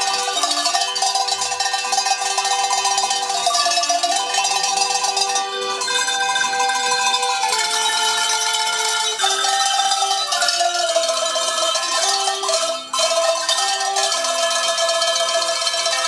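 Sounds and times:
cowbells playing a melody: 0:00.0 - 0:16.0.

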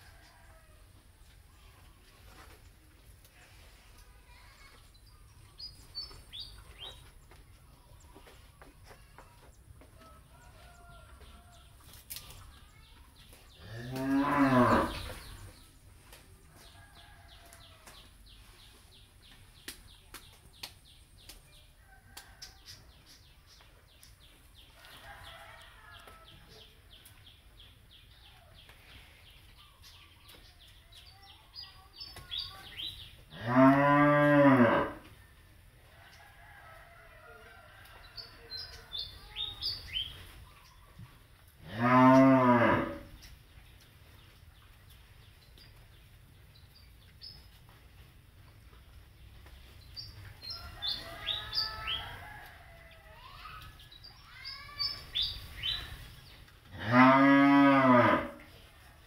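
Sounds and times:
cattle mooing: 0:56.8 - 0:58.4.

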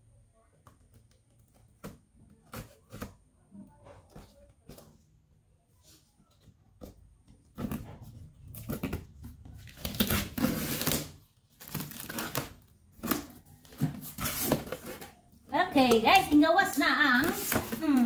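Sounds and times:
scissors cutting cardboard: 0:08.6 - 0:15.1.

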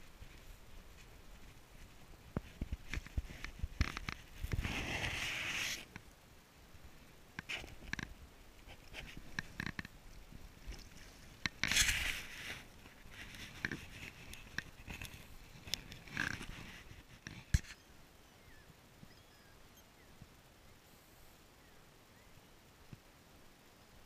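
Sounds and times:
fabric rubbing against camera: 0:02.5 - 0:05.9, 0:11.1 - 0:17.8.

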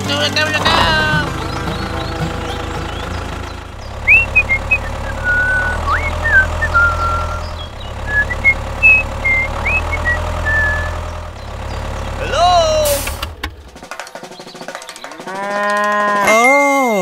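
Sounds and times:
tractor engine running: 0:00.0 - 0:15.2
high chirping tones: 0:03.8 - 0:11.1.

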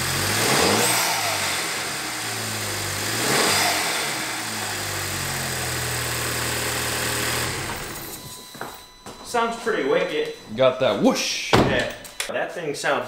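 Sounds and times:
car engine idling and revving: 0:00.0 - 0:08.4.

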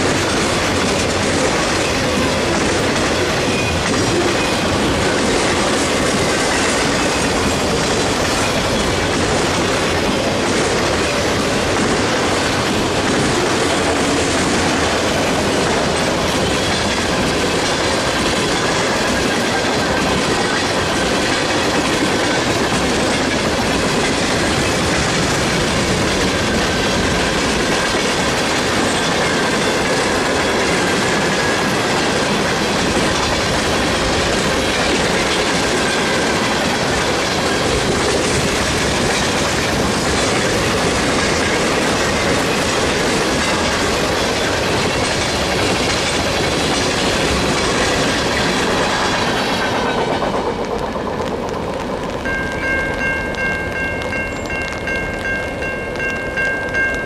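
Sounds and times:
freight train rolling past: 0:00.0 - 0:57.0
steel wheels clacking over rail joints: 0:00.0 - 0:57.0.

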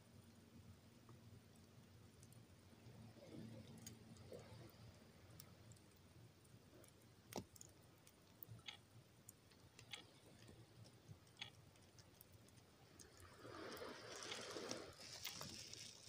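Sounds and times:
soft hiss: 0:00.0 - 0:16.0
wood fire crackling: 0:05.2 - 0:16.0.

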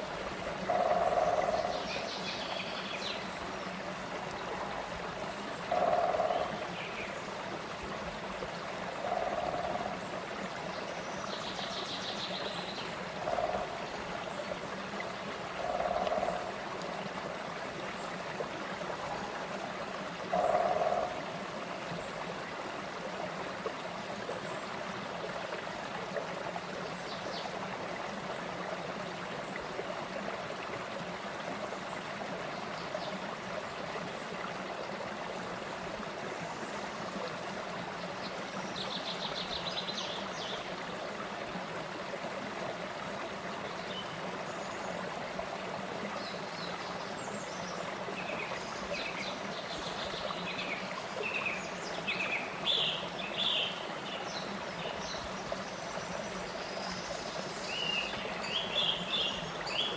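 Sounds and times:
stream running over rocks: 0:00.0 - 0:59.9.

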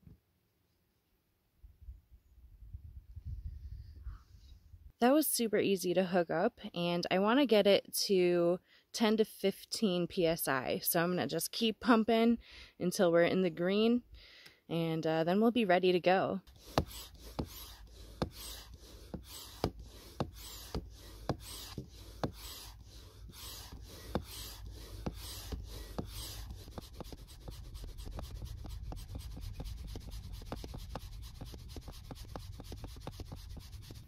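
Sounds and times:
hand pump strokes: 0:16.5 - 0:34.0.

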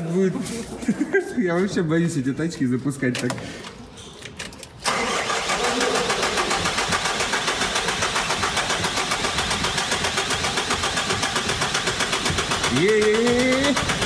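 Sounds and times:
diesel engine cranking and starting: 0:04.8 - 0:14.0.

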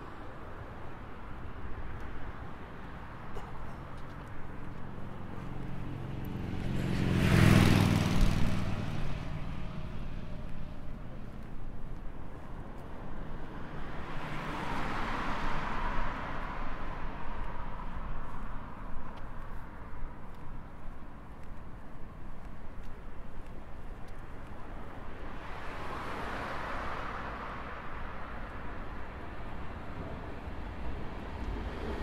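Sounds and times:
vehicle passing: 0:04.0 - 0:11.7.

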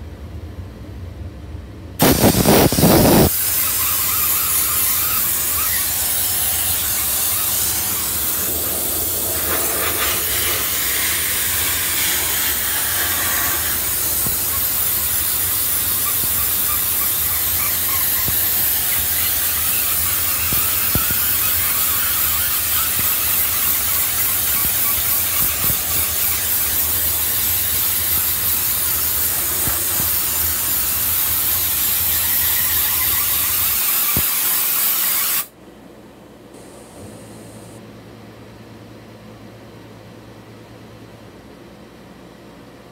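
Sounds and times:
steam jet hissing: 0:02.0 - 0:35.5.

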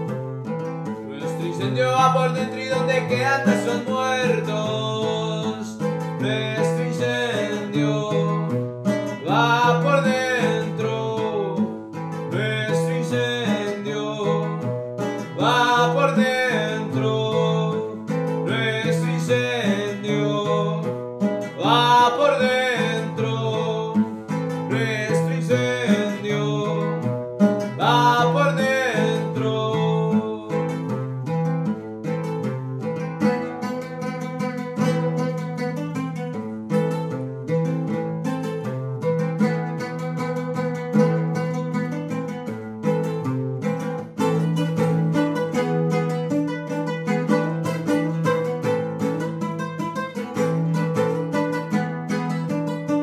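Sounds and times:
bandola strumming rhythm: 0:00.0 - 0:53.0
man singing gliding phrases: 0:01.0 - 0:31.2.

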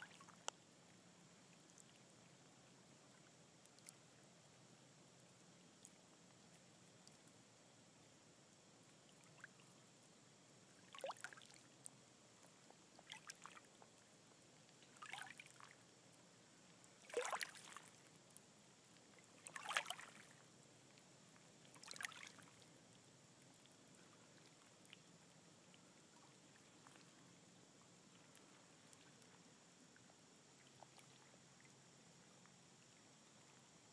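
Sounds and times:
lake water lapping and splashing: 0:00.0 - 0:04.3, 0:08.8 - 0:09.9, 0:10.6 - 0:33.9.

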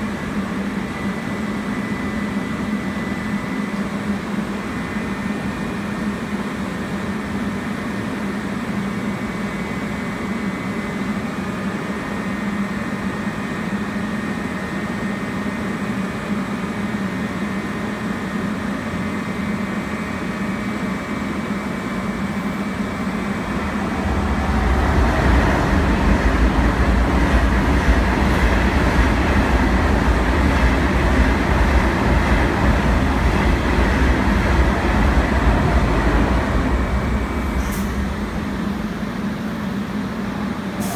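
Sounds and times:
train machinery humming: 0:00.0 - 0:40.9
pulsing low rumble: 0:23.4 - 0:38.9.

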